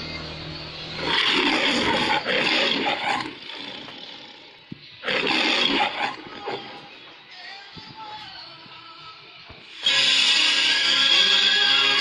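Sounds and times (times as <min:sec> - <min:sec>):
lion roaring: 0:00.9 - 0:06.8.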